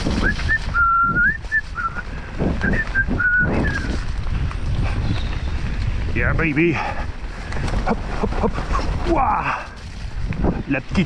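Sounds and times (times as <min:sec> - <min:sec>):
bike rumbling along a trail: 0:00.0 - 0:11.0
person whistling a tune: 0:00.2 - 0:02.0, 0:02.6 - 0:04.0.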